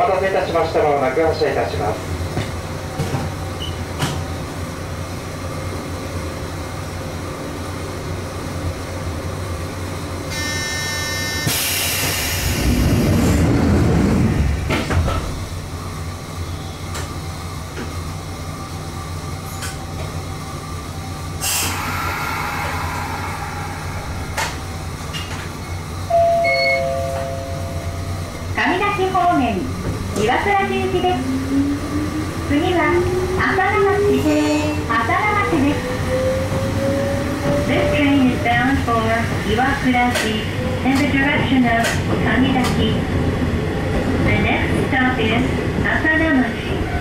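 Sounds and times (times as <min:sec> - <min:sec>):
train equipment humming: 0:00.0 - 0:47.0
rush of noise: 0:21.4 - 0:25.4
two-note chime: 0:26.1 - 0:28.2.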